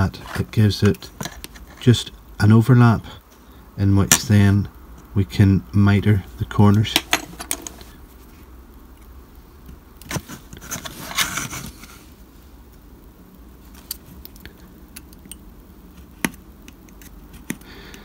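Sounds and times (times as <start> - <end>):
knife scraping plastic: 10.0 - 12.0.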